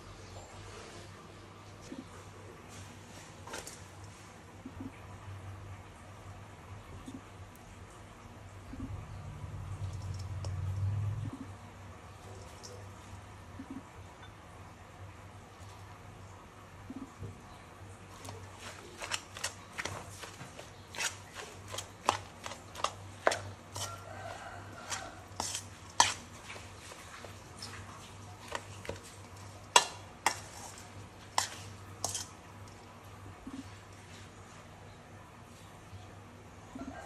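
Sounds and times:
metal spoon stirring in steel bowl: 0:09.8 - 0:10.7, 0:18.2 - 0:32.9.

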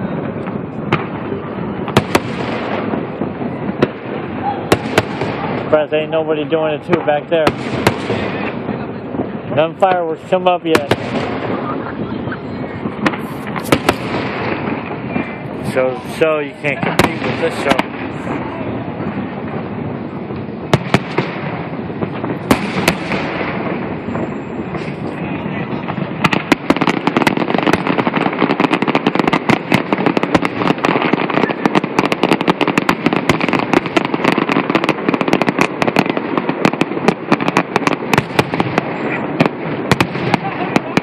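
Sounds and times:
fireworks bursting: 0:00.0 - 0:41.0
steady rushing background noise: 0:02.8 - 0:26.7.

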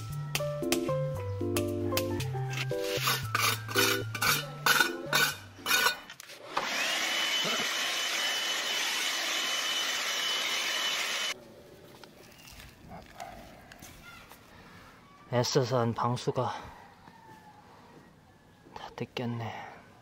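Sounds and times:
background music with beat: 0:00.0 - 0:05.0
electric blower whining: 0:06.4 - 0:11.4.

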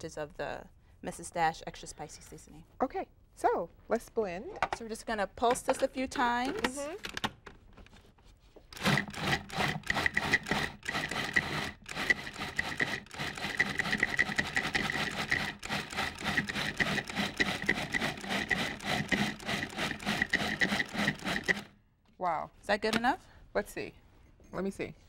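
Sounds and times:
food processor chopping: 0:08.8 - 0:21.7.

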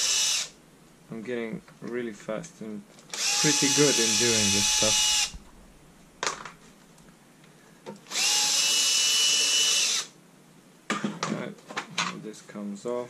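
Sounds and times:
cordless drill motor whine: 0:00.0 - 0:00.6, 0:03.1 - 0:05.4, 0:08.1 - 0:10.1.

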